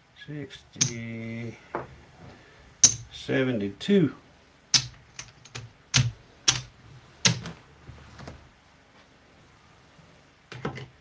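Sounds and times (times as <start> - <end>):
casino chips clacking: 2.8 - 3.1, 4.8 - 7.5.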